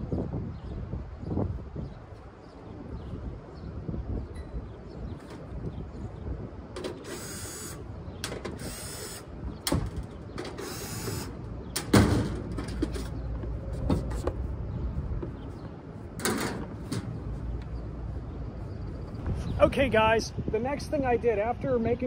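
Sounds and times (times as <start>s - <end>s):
cordless drill whirring: 7.0s - 7.8s
metal panel clanking: 11.7s - 14.4s, 16.2s - 17.3s.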